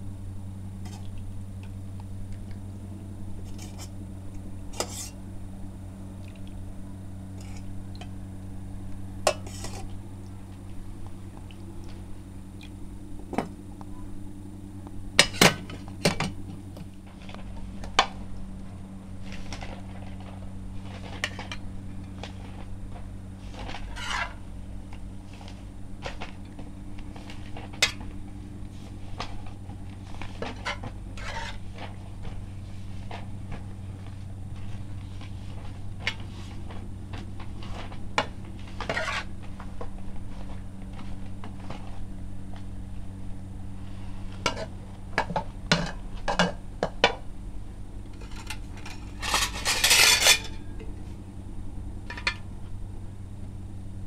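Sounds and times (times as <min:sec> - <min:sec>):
steady low hum: 0:00.0 - 0:54.0
metal utensils clinking on dishes: 0:04.8 - 0:05.2, 0:48.2 - 0:51.0.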